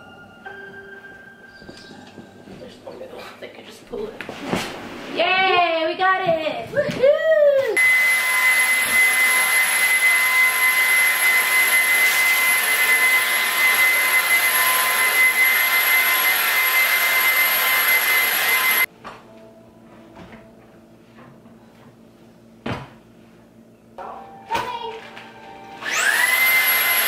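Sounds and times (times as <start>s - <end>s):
small motor whining: 25.8s - 27.0s.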